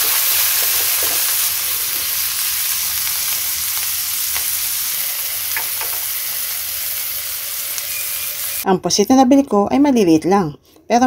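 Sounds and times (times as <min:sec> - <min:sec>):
wooden spatula scraping wok: 0:00.0 - 0:02.2
vegetables sizzling in hot oil: 0:00.0 - 0:08.7.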